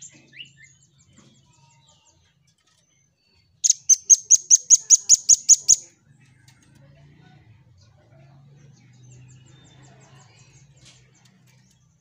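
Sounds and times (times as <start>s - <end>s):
faint high bird ticks: 3.6s - 5.8s
fast sharp high bird notes: 3.6s - 5.8s.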